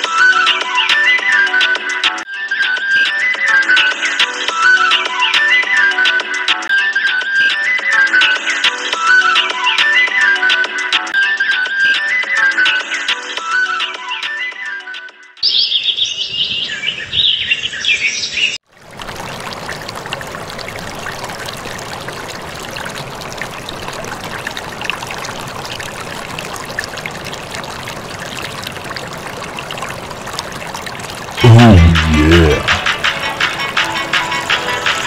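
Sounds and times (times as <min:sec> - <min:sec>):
birds chirping: 0:15.4 - 0:18.6
water pouring into pool: 0:18.6 - 0:33.6.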